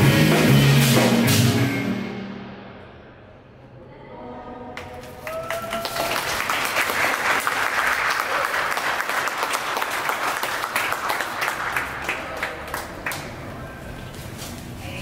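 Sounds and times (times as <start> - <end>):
music: 0.0 - 3.0
audience applauding: 5.0 - 13.4.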